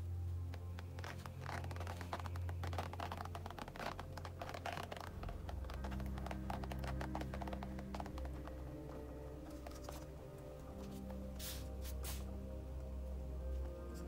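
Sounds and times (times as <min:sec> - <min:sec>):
paint dripping onto canvas: 0:00.6 - 0:10.4.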